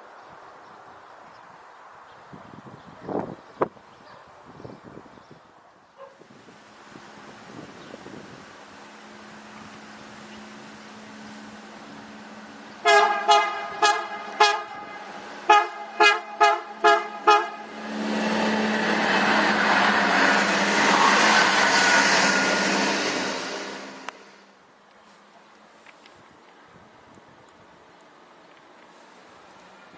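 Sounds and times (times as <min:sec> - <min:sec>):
train passing: 0:06.4 - 0:24.7
train horn toots: 0:12.8 - 0:24.3.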